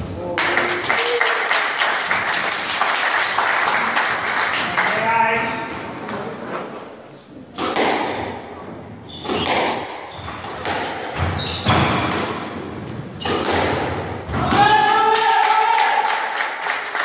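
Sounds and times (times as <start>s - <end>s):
people clapping: 0.2s - 5.6s, 14.6s - 17.0s
squash ball hitting rackets and walls: 7.4s - 15.0s
person shouting: 14.3s - 16.1s.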